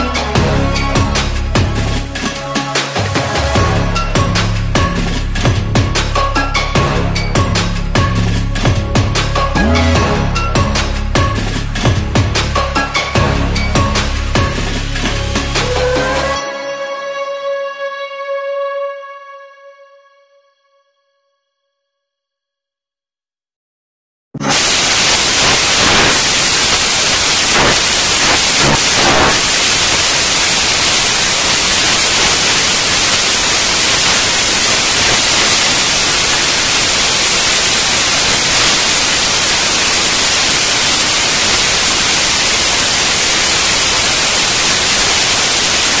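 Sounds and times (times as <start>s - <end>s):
loud static hiss: 24.4s - 46.0s.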